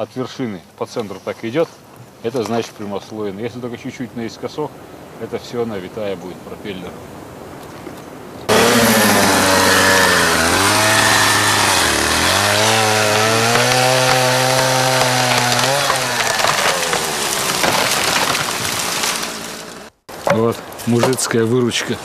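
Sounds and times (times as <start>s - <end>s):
chainsaw cutting into tree: 8.5s - 20.0s.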